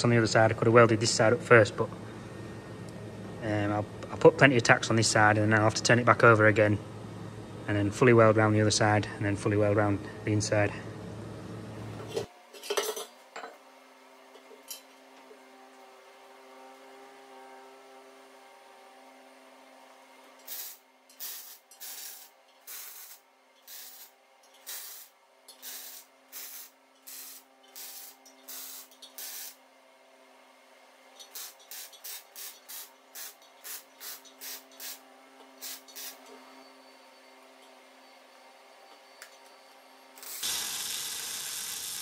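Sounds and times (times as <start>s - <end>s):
steady low hum: 0.0s - 12.4s
welding arc crackling hiss: 20.4s - 29.6s, 31.2s - 35.0s, 35.6s - 36.2s, 40.2s - 42.0s.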